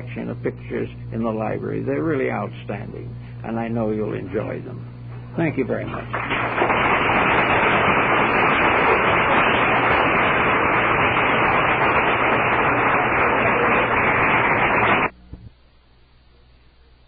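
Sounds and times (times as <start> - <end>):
audience applauding: 6.1 - 15.1.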